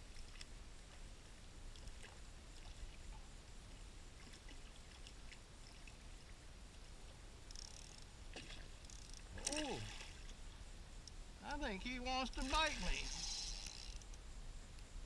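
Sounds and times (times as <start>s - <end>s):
water lapping and splashing: 1.7s - 7.3s, 8.3s - 10.4s.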